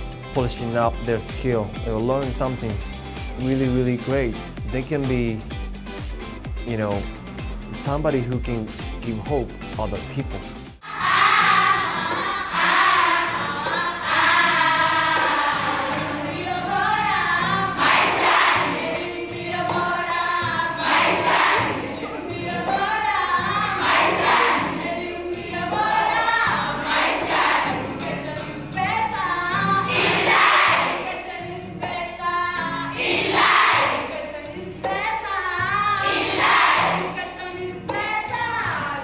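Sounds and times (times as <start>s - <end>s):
girls singing together: 10.8s - 39.0s
group shouting: 23.8s - 24.8s, 29.9s - 31.0s, 36.0s - 37.1s.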